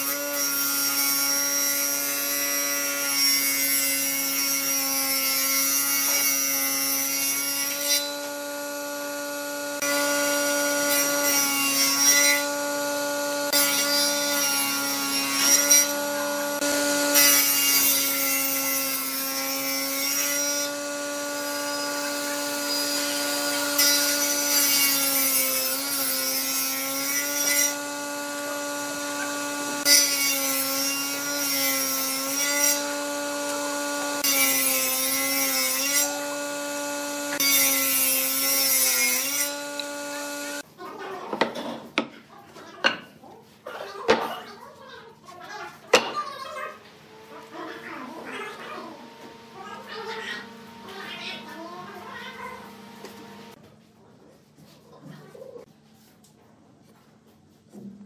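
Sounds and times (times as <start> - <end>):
table saw motor hum: 4.0 - 40.6, 46.8 - 53.6.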